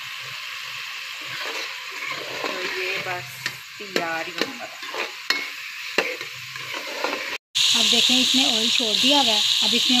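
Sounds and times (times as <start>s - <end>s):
meat sizzling in oil: 0.0s - 10.0s
spoon scraping a metal pot: 1.2s - 7.4s.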